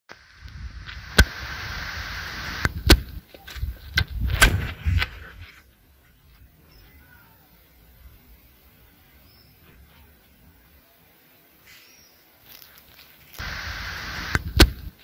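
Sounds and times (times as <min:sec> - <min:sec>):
wind rushing over microphone: 0:00.3 - 0:05.5
sharp pops and knocks: 0:02.6 - 0:05.1, 0:14.2 - 0:15.0.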